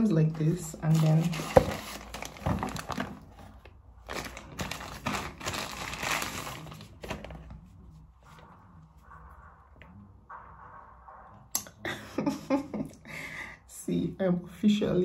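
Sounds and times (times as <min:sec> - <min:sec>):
packaging wrap crinkling: 0:00.8 - 0:07.4.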